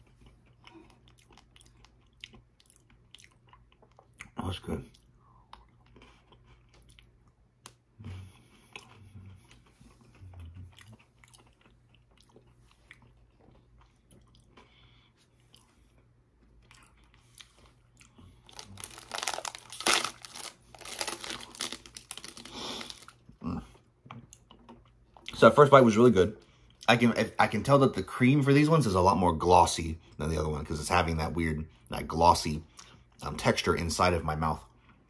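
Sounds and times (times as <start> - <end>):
chewing and crunching biscuit: 0.0 - 27.8
foil packet crackling: 18.5 - 23.2.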